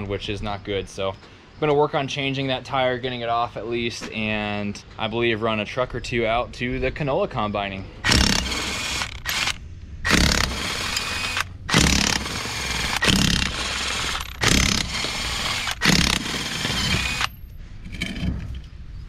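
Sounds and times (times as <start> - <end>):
impact wrench hammering: 8.0 - 17.4.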